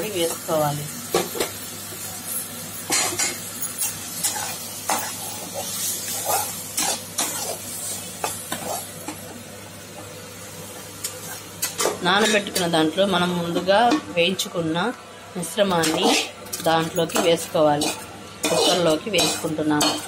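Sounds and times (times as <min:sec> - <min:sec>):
oil sizzling: 0:00.0 - 0:20.0
spatula scraping and knocking pan: 0:15.8 - 0:20.0.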